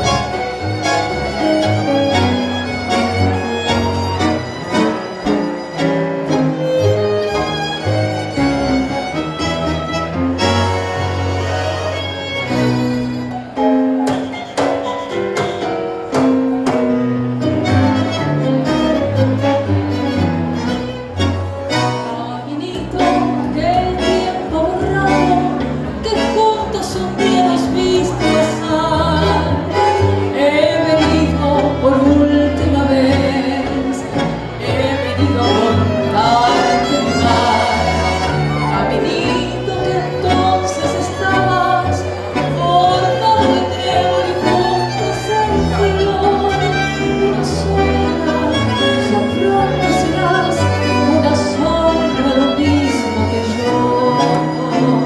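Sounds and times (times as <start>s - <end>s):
bandoneon: 0.0s - 55.0s
double bass: 0.0s - 55.0s
piano: 0.0s - 55.0s
tango ensemble playing: 0.0s - 55.0s
violin: 0.0s - 55.0s
woman singing with vibrato: 21.9s - 55.0s.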